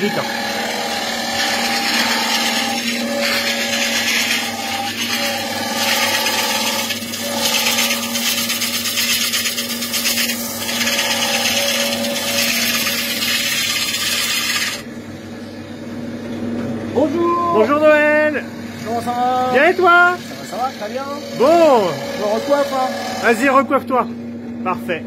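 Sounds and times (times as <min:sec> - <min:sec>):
wood lathe motor hum: 0:00.0 - 0:16.0, 0:16.8 - 0:23.9
gouge cutting wood hiss: 0:01.4 - 0:14.8.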